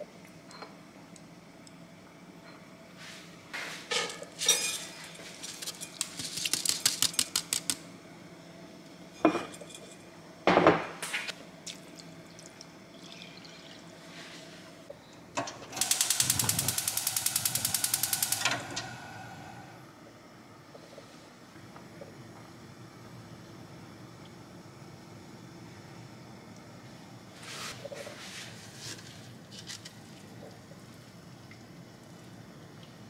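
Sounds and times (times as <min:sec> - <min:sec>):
utensils clinking against dishes: 0:03.9 - 0:07.3
fast even rattle: 0:15.8 - 0:18.5
quick clicks: 0:15.8 - 0:18.6.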